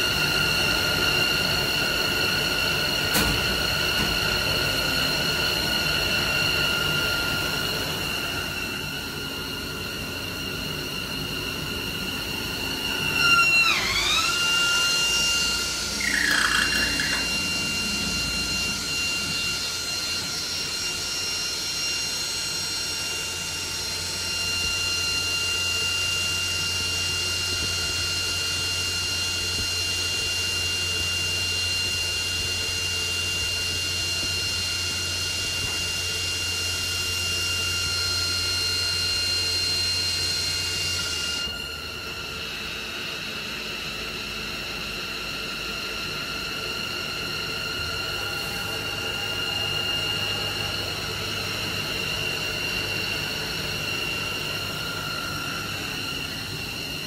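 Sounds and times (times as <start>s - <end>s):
friction welding spindle whine: 0.0s - 57.0s
quiet machine hum: 0.2s - 25.4s, 31.0s - 57.0s
falling squeal: 12.6s - 21.0s.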